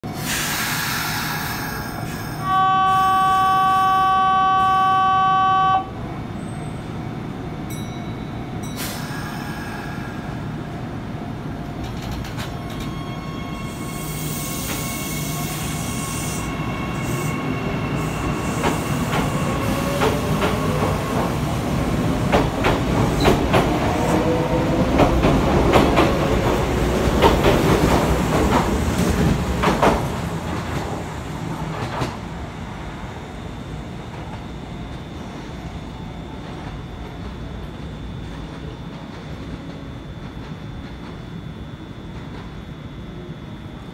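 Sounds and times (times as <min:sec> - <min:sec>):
train horn: 0:02.4 - 0:06.0.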